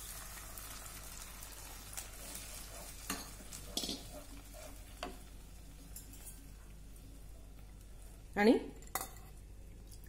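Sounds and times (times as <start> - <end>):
faint batter sizzling in a pan: 0.0 - 10.0.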